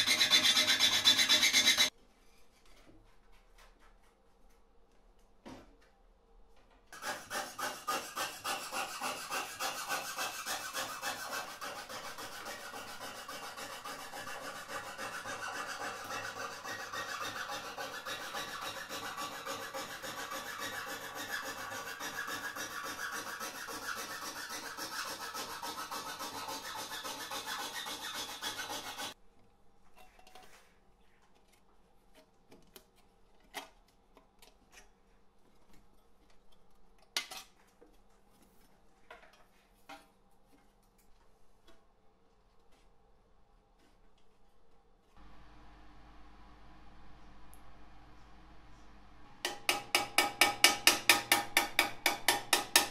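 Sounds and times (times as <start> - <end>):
hand tool rasping metal: 0.0 - 1.9, 7.0 - 29.2.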